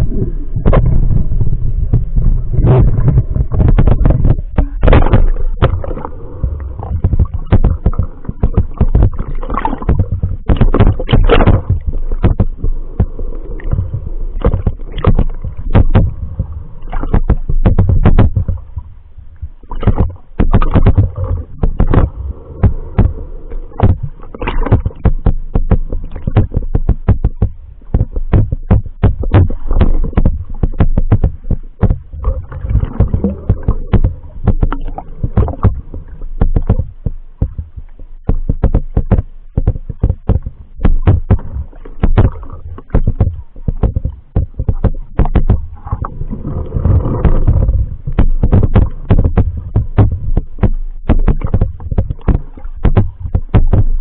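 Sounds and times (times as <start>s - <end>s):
low rumble: 0.0s - 54.0s
muffled underwater water movement: 0.0s - 54.0s
knocks and clicks: 1.9s - 18.7s, 19.7s - 54.0s.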